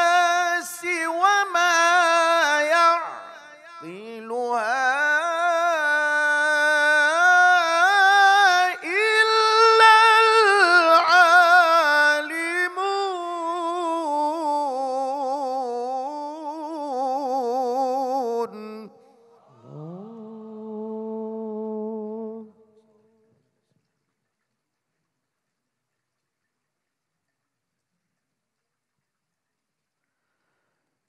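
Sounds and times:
man chanting into a microphone: 0.0 - 22.6.

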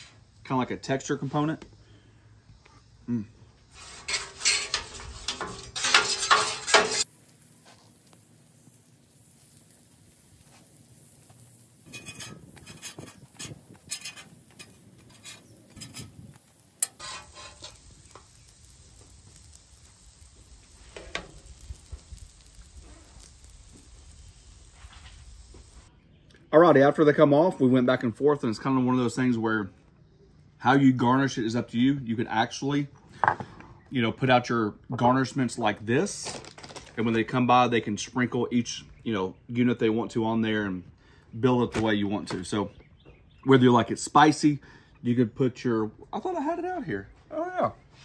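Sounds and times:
fritters sizzling: 0.0 - 25.9
metal spatula scraping griddle: 3.7 - 7.1, 11.8 - 19.6, 20.8 - 24.0.

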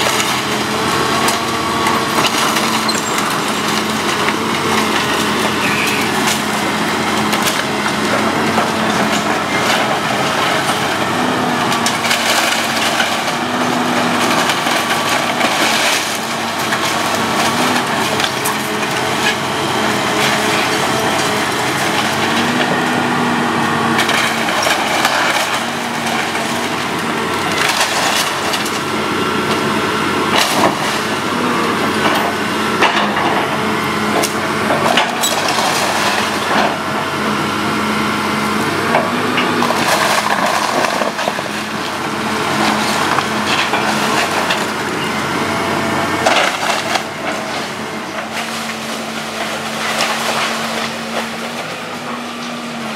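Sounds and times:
excavator engine running: 0.0 - 52.9
wood splintering and crashing: 0.0 - 52.9.

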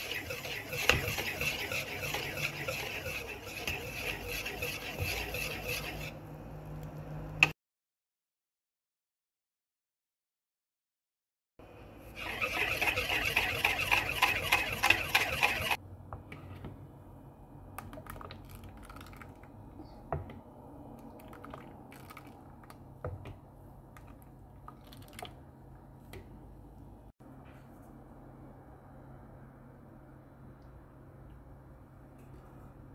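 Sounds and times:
whisk rattling against bowl: 0.0 - 6.1, 12.2 - 15.8.

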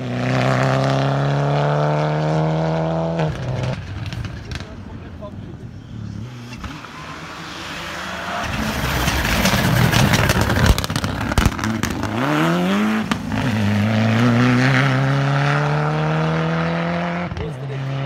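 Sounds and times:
rally car engine revving: 0.0 - 4.9, 5.6 - 18.0
engine bangs: 3.3 - 17.6.

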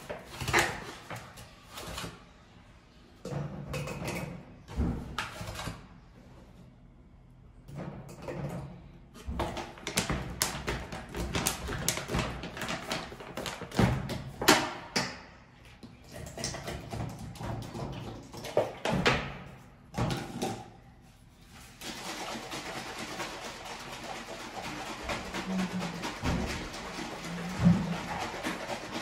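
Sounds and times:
plastic shaker cup knocking: 22.3 - 29.0.

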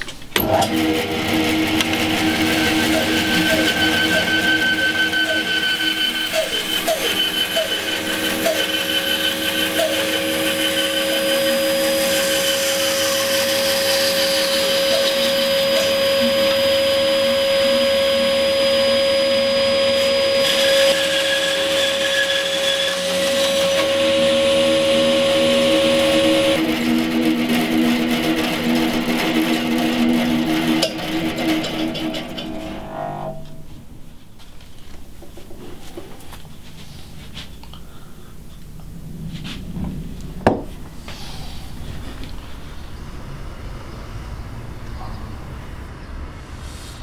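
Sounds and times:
bandsaw cutting wood: 0.4 - 33.5.

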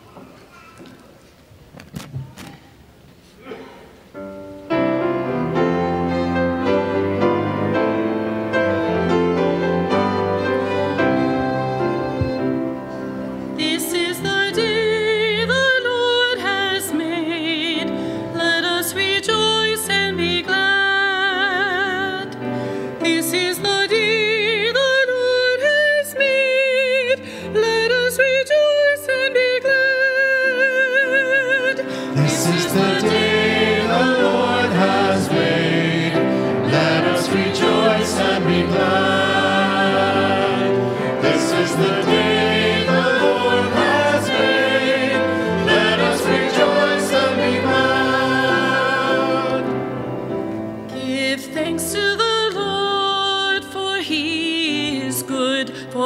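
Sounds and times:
instrumental accompaniment: 4.2 - 13.6, 31.8 - 51.2
choir singing: 5.3 - 12.4, 32.0 - 51.2.

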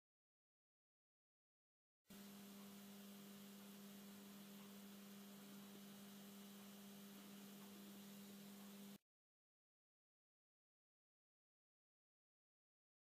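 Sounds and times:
faint low hum: 2.1 - 9.0
light hiss: 2.1 - 9.0.

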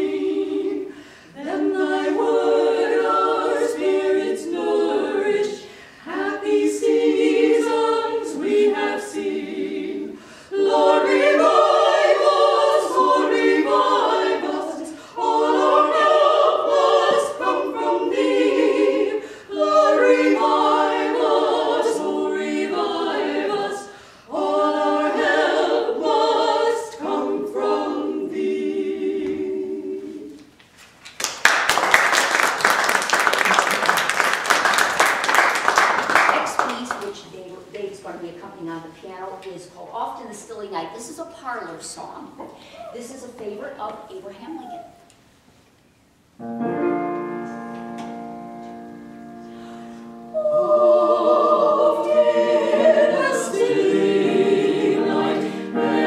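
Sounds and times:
women singing in harmony: 0.0 - 30.5, 50.2 - 56.0.

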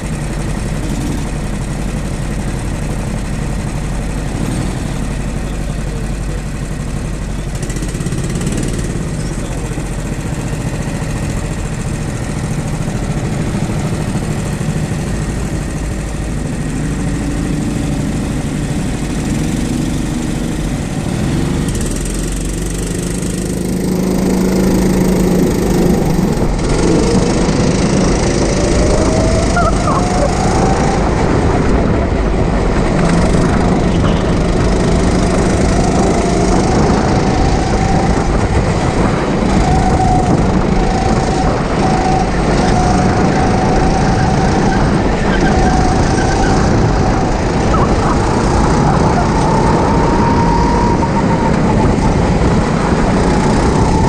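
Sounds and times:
go-kart engine running: 0.0 - 54.0.

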